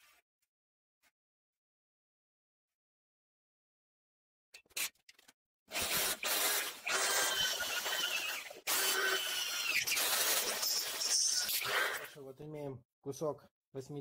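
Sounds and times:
electric drill boring into steel: 5.7 - 12.2.

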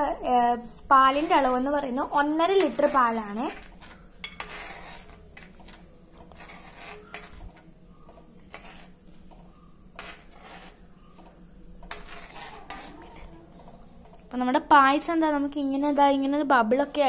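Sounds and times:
spoon scraping metal pan: 0.6 - 14.3.

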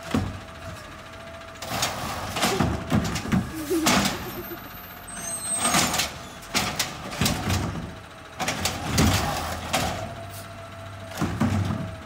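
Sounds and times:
garbage truck diesel engine: 0.0 - 12.0
clanks and knocks of arm and cart: 1.6 - 4.4, 5.6 - 10.1, 11.1 - 12.0.

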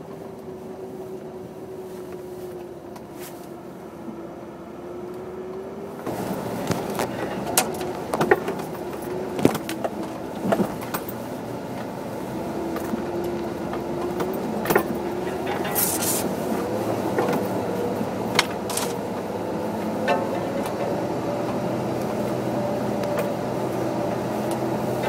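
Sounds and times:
vehicle engine pulling: 0.0 - 25.0
vehicle knocks and rattles: 6.1 - 22.4.

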